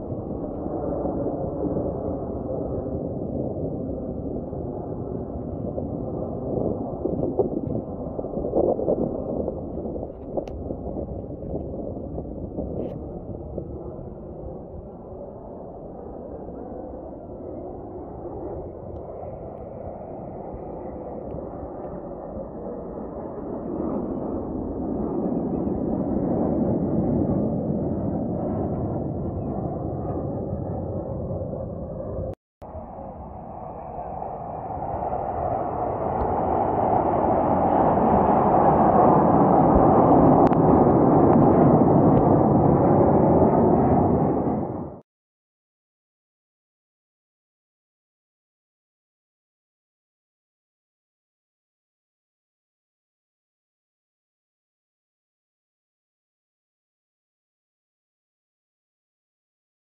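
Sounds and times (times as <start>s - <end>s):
distant jet aircraft rumbling: 0.0s - 45.0s.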